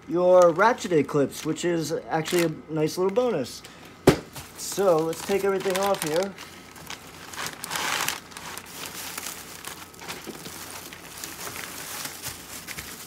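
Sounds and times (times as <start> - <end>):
plastic wrapping crinkling: 2.2 - 3.2, 4.3 - 13.0.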